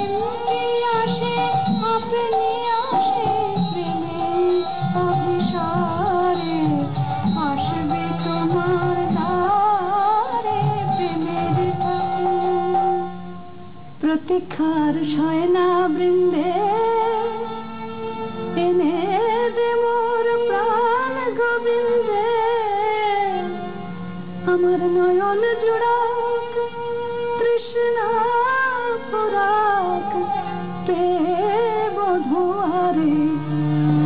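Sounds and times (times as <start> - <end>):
person singing ornamented melody: 0.0 - 13.2
instrumental accompaniment: 0.0 - 34.0.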